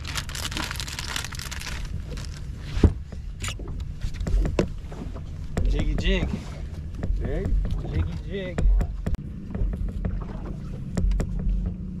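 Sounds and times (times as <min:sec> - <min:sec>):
plastic bag crinkling: 0:00.0 - 0:02.5
steady low rumble: 0:00.0 - 0:12.0.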